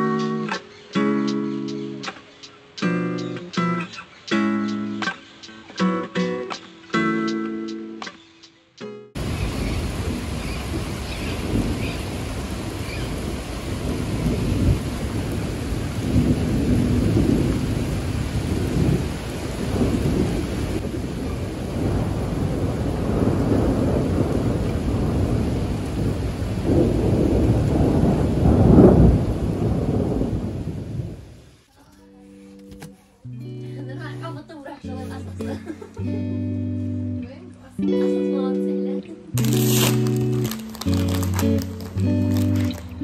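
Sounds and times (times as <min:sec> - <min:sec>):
steady rain: 0:00.0 - 0:05.8, 0:09.2 - 0:43.0
thunder rumbling: 0:09.2 - 0:31.5.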